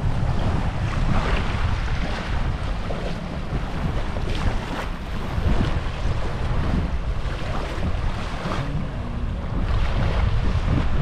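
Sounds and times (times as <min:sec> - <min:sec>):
small waves washing on shore: 0:00.0 - 0:11.0
wind buffeting microphone: 0:00.0 - 0:11.0.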